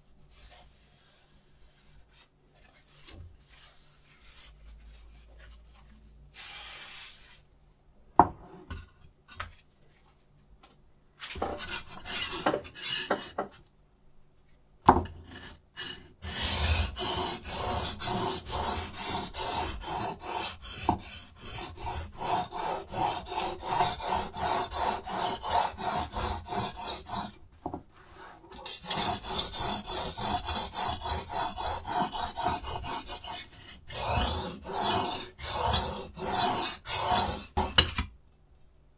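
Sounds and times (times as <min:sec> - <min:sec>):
sharpening stone rasping on knife: 0:11.6 - 0:13.6, 0:15.2 - 0:27.4, 0:28.5 - 0:38.1.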